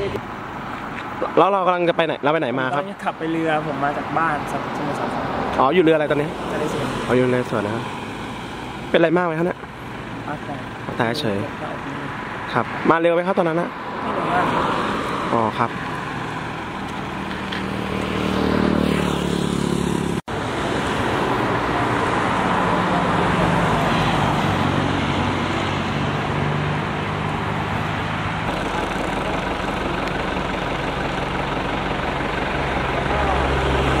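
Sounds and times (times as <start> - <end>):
rush of passing traffic: 0.0 - 34.0
vehicle passing: 0.0 - 34.0
low engine hum: 14.0 - 34.0.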